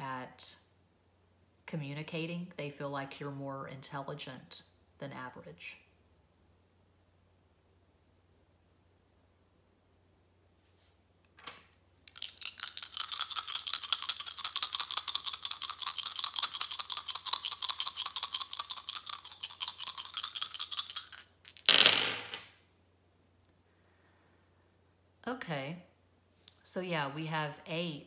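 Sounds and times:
cards being shuffled: 0:11.4 - 0:22.5.

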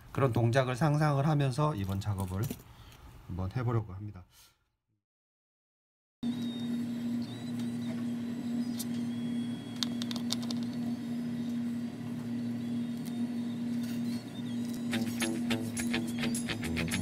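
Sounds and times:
music with a beat: 0:14.9 - 0:17.0.

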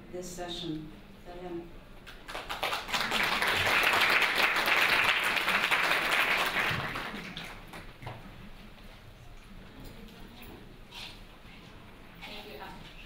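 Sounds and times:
audience applauding: 0:02.1 - 0:08.0.

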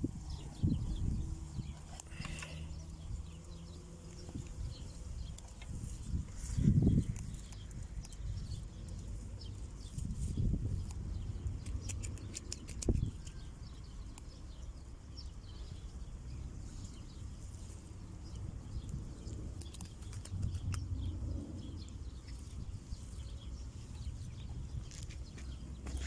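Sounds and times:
wind rumbling on microphone: 0:00.0 - 0:26.0
small clicks and ticks: 0:06.9 - 0:09.6, 0:10.7 - 0:14.4, 0:18.3 - 0:21.1.

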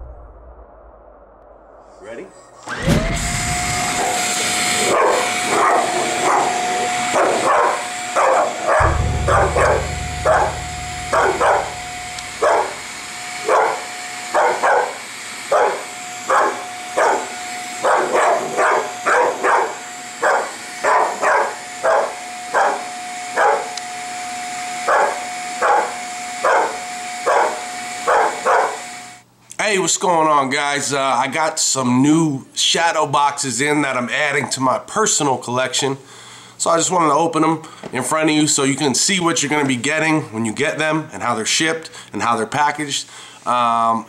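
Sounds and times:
vacuum cleaner whining: 0:02.6 - 0:29.3
dog barking: 0:04.8 - 0:08.8, 0:12.4 - 0:12.7, 0:13.5 - 0:22.8, 0:23.4 - 0:23.7, 0:24.9 - 0:28.8.

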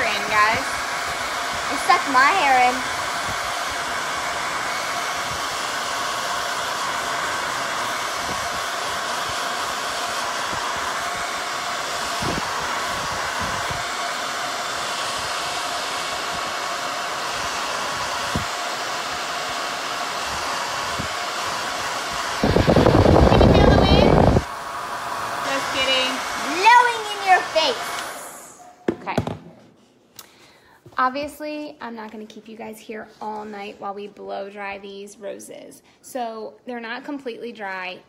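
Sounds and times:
hair dryer running: 0:00.0 - 0:29.4.

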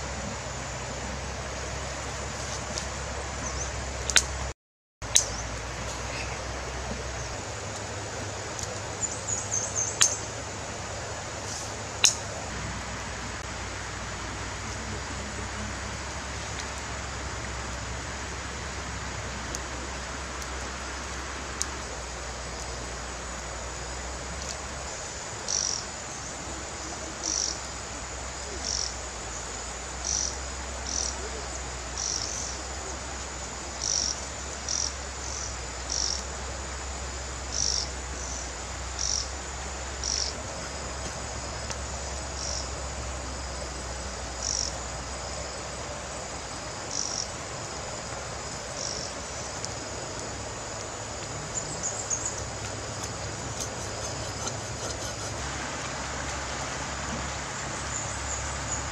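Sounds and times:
outdoor background hiss: 0:00.0 - 0:58.9
small animal chirping: 0:09.5 - 0:10.2, 0:52.1 - 0:55.4.

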